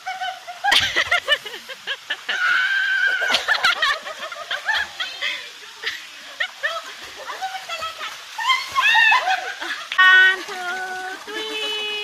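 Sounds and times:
women giggling: 0.0 - 10.0
women shrieking: 2.2 - 3.6, 7.2 - 9.8.

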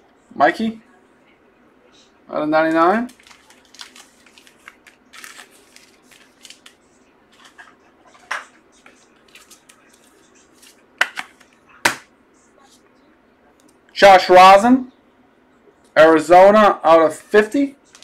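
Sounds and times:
trading cards being handled: 2.7 - 12.0.

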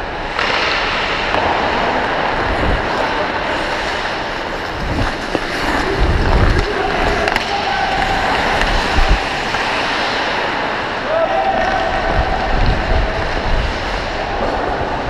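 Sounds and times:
skates scraping on ice: 0.1 - 15.0.

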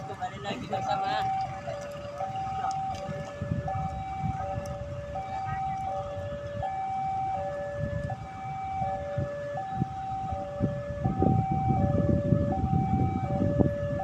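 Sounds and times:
two-tone warning alarm: 0.0 - 14.0.

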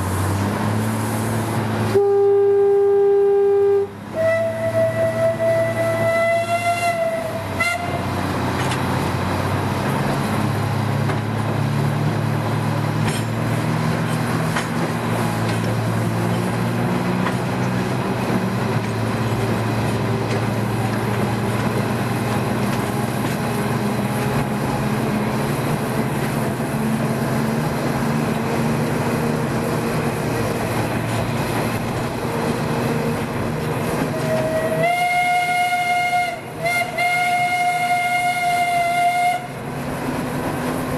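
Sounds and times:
train running noise: 0.0 - 40.9
steam locomotive whistle: 1.9 - 8.2, 34.0 - 39.6.

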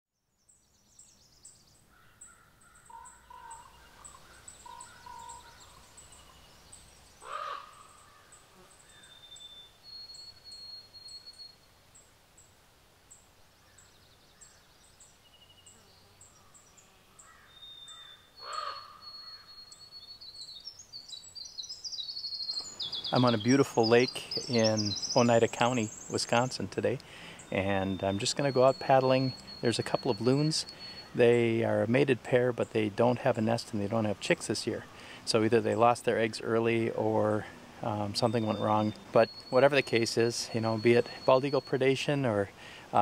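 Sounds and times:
whistled birdsong: 0.1 - 43.0
harsh bird calls: 1.5 - 11.5, 13.6 - 43.0
thin high bird chirp: 13.8 - 26.6.

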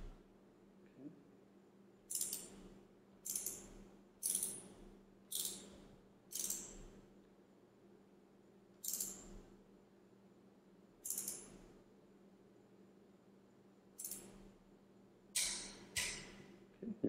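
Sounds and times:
ratchet clicking: 2.1 - 2.6, 3.2 - 4.7, 5.3 - 6.9, 8.8 - 9.4, 11.0 - 11.6, 14.0 - 14.4.

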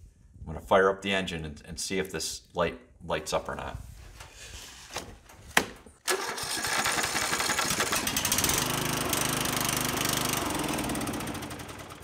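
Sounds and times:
lawn mower engine running: 6.1 - 12.0.

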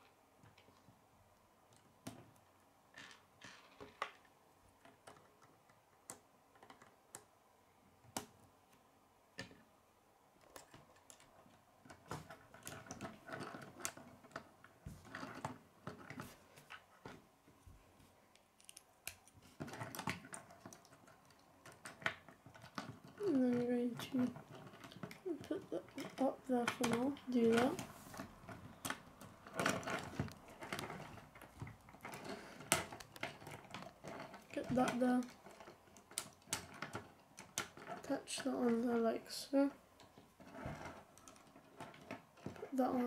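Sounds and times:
plastic pieces clicking together: 10.4 - 14.5, 18.3 - 27.8, 28.5 - 38.4.

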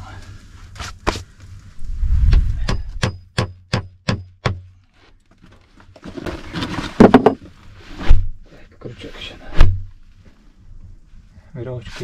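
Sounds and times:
hammer striking nail into wood: 2.6 - 4.7.

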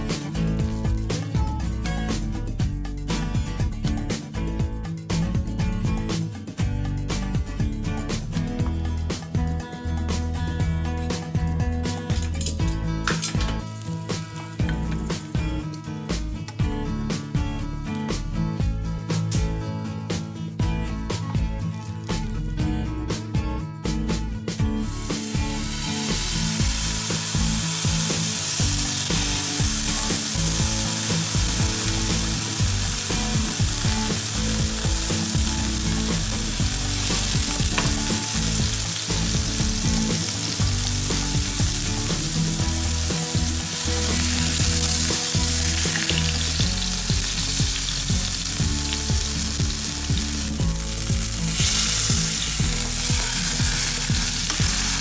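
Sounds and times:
beef sizzling in hot oil: 13.6 - 15.3, 24.8 - 55.0.

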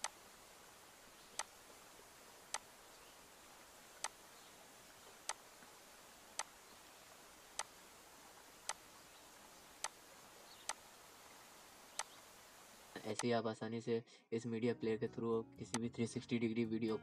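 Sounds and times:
faint steady hiss: 0.0 - 13.4.

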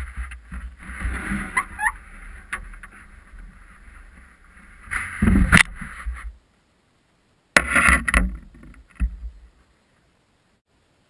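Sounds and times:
camera handling rumble and rubbing: 0.0 - 6.3
loud scrape: 0.0 - 6.3
short squeaks: 1.1 - 2.0.

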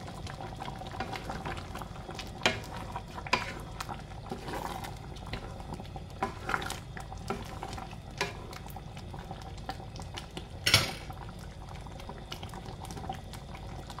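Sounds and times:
stew bubbling in a pan: 0.0 - 14.0
wooden spatula scraping a pan: 2.4 - 5.6, 6.2 - 8.5.

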